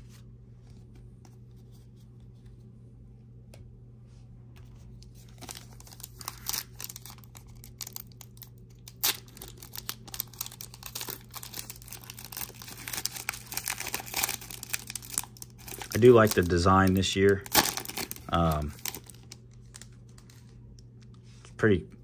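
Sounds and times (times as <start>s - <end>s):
foil pack tearing and crinkling: 5.2s - 20.4s.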